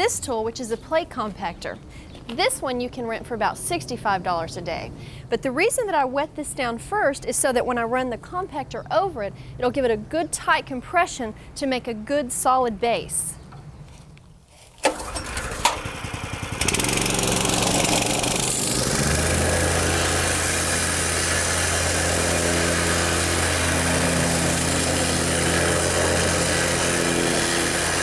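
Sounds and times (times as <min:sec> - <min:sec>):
recoil starter clicks: 0:14.8 - 0:15.9
four-stroke engine running: 0:14.9 - 0:28.0.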